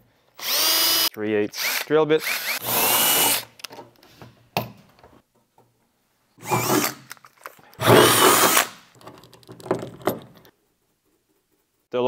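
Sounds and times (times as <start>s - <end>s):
drill boring through sheet metal: 0.4s - 3.4s, 7.8s - 8.7s.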